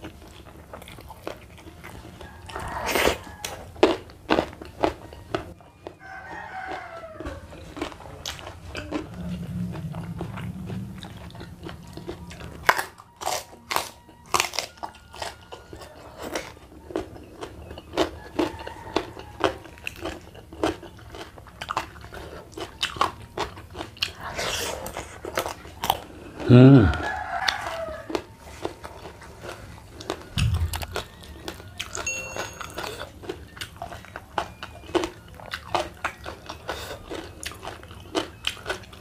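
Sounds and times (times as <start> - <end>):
chewing crunchy raw vegetables: 0.0 - 39.0.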